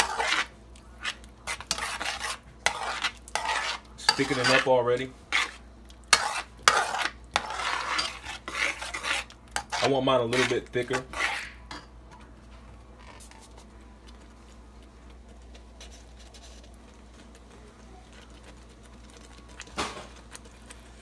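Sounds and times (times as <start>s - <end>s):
metal spoon scraping a pot: 0.0s - 11.8s
faint steady hum: 0.0s - 21.0s.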